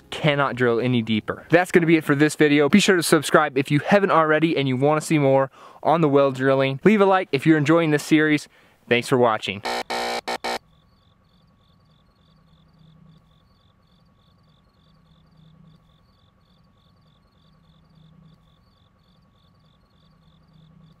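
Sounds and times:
soft low hum: 0:09.6 - 0:21.0
high-pitched insect-like chirping: 0:09.8 - 0:21.0.

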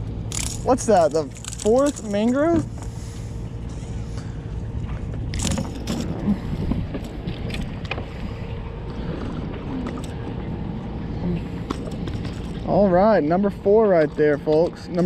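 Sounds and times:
steady low rumble: 0:00.0 - 0:15.0
clicks and rustles of unhooking: 0:00.3 - 0:02.9, 0:04.9 - 0:06.2
fish flapping: 0:05.0 - 0:06.2.

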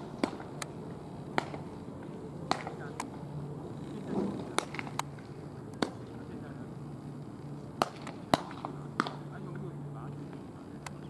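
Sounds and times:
baseballs smacking into gloves: 0:00.2 - 0:00.7, 0:01.4 - 0:01.7, 0:02.5 - 0:03.1, 0:04.4 - 0:05.1, 0:05.7 - 0:06.2, 0:07.8 - 0:09.3.

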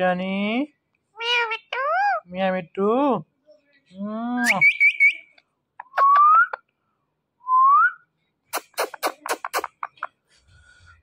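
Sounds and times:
parakeet chirping: 0:01.2 - 0:02.3.

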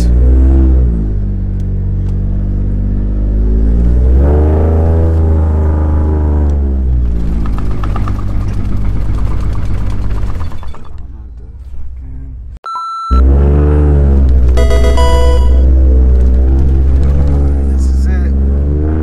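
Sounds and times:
rattling clatter: 0:07.3 - 0:11.2.

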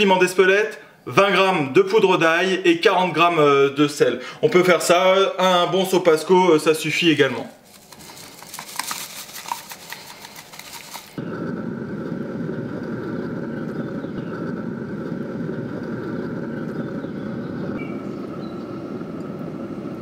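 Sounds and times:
smoker fan hum with whine: 0:07.6 - 0:20.0.

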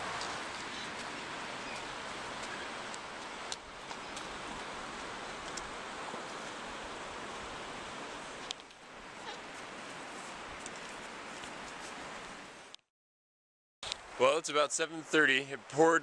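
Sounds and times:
footsteps on dirt path: 0:00.0 - 0:06.7, 0:09.2 - 0:12.5
outdoor background hiss: 0:00.0 - 0:12.8, 0:13.8 - 0:16.0.

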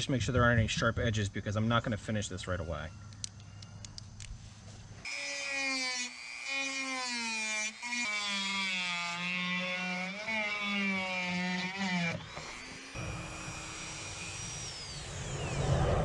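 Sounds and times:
rotary tool sanding whine: 0:04.4 - 0:16.0.

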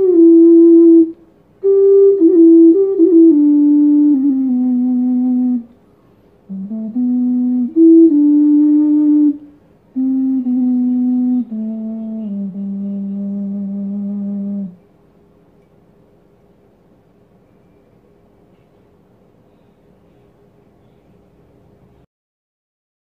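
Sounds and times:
ocarina melody: 0:00.0 - 0:05.8, 0:06.5 - 0:14.8.

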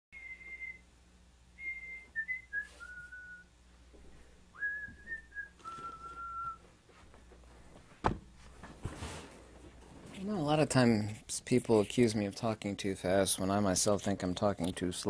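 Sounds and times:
person whistling a tune: 0:00.2 - 0:00.9, 0:01.6 - 0:03.5, 0:04.6 - 0:06.6.

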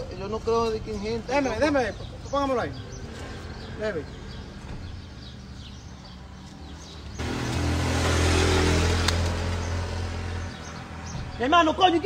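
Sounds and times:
vehicle engine droning: 0:06.4 - 0:11.5.

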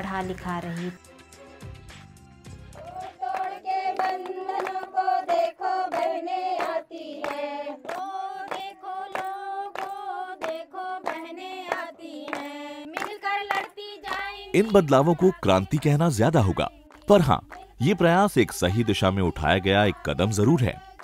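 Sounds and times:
hands clapping in time: 0:02.8 - 0:18.9
women singing together: 0:02.8 - 0:21.0.

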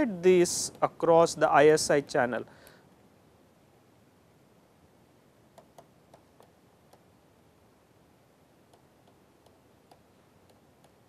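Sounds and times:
stylus tapping on tablet screen: 0:05.5 - 0:07.1, 0:08.6 - 0:11.0.

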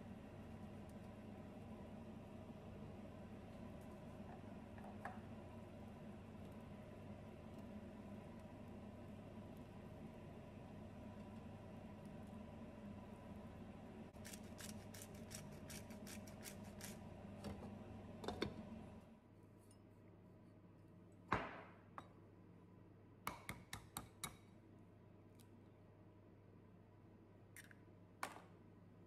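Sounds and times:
steady hum: 0:00.0 - 0:19.2.

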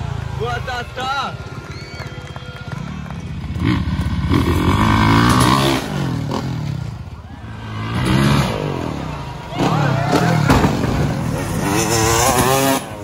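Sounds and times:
motocross bike engine revving: 0:02.7 - 0:13.0.

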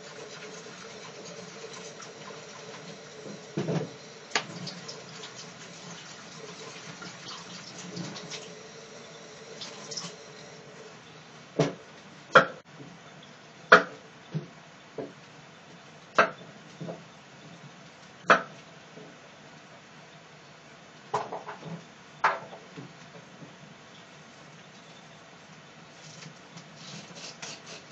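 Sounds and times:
kitchen tap running: 0:00.0 - 0:10.8
knife scraping cucumber skin: 0:26.0 - 0:27.9.

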